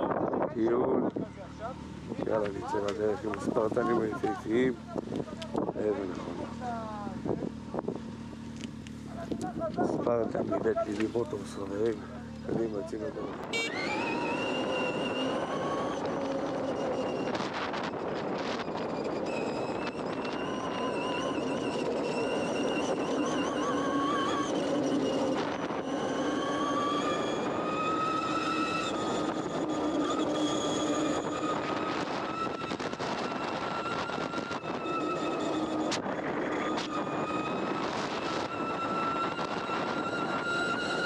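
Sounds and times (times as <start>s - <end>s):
wind and tyre noise: 0.0s - 41.0s
electric motor whine: 10.2s - 41.0s.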